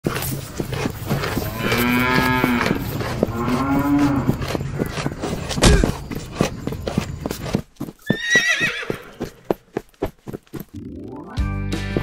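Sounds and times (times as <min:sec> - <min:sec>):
cattle mooing: 0:01.2 - 0:05.2.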